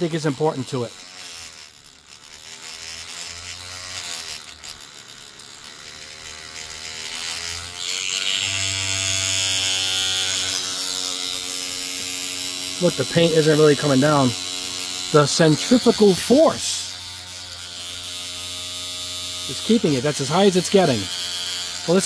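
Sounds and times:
paint shaker motor buzzing: 0:00.0 - 0:22.0
hissing rattle: 0:10.6 - 0:17.0.

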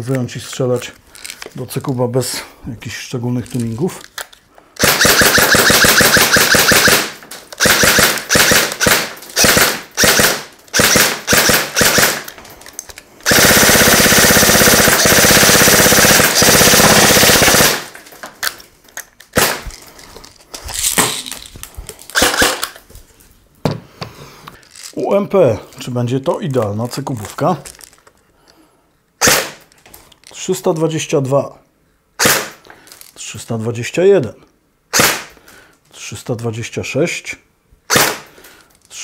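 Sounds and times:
airsoft gun firing full auto: 0:04.8 - 0:12.3, 0:13.2 - 0:17.9, 0:19.4 - 0:19.6, 0:22.2 - 0:22.6, 0:29.2 - 0:29.6, 0:32.2 - 0:32.6, 0:34.9 - 0:35.3.

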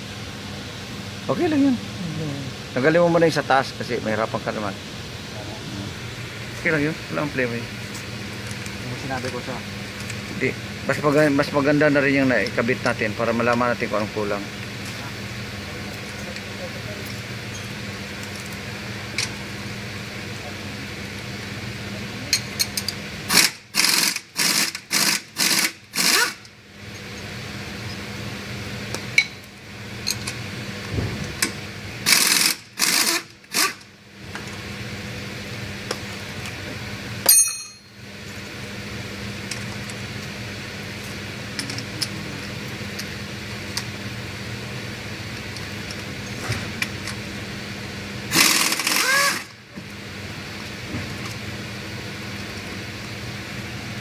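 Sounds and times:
impact wrench rattling bursts: 0:23.3 - 0:26.4, 0:32.0 - 0:33.9, 0:48.3 - 0:49.6.

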